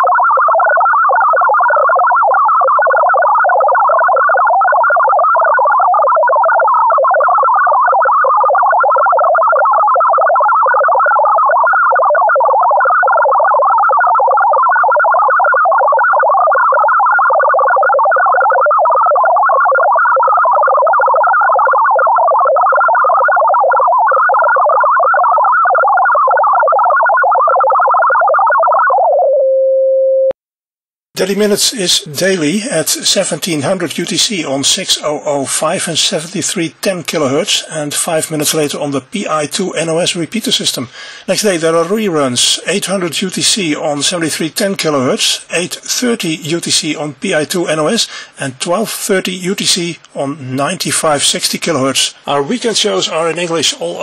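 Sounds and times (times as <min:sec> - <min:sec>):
warble of rapidly hopping tones: 0:00.0 - 0:29.3.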